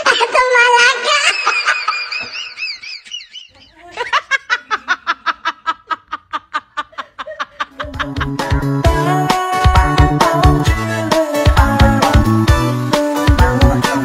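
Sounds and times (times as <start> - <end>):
rapid ha-ha laughter: 0.0 - 8.4
person giggling: 1.0 - 8.5.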